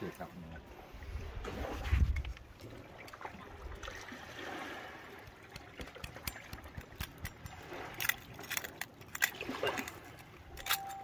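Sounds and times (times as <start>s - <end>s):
knife scraping oyster shell: 5.8s - 11.0s.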